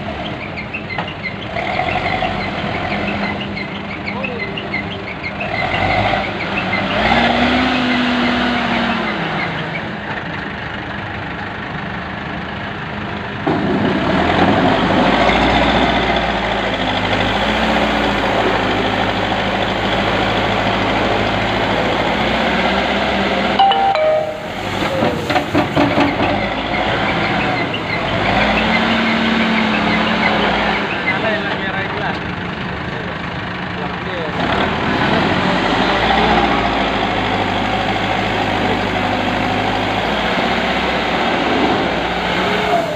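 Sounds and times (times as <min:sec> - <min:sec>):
diesel engine revving: 0:00.0 - 0:23.6, 0:24.6 - 0:42.9.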